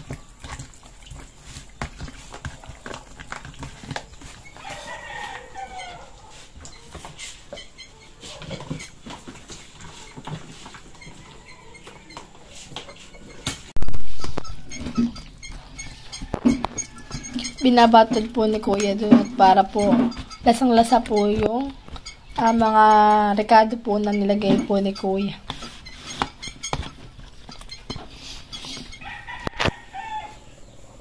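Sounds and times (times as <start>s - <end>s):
hand squishing raw chicken: 0.0s - 13.4s
chicken calling: 4.6s - 6.9s, 28.7s - 31.0s.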